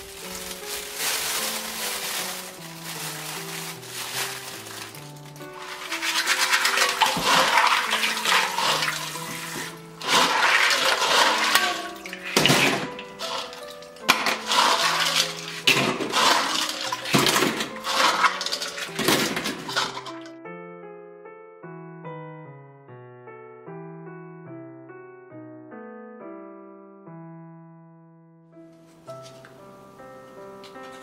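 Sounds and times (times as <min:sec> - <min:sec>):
soft piano music: 0:00.0 - 0:31.0
clams rubbed together: 0:04.1 - 0:20.0
water sloshing in metal bowl: 0:04.4 - 0:20.3.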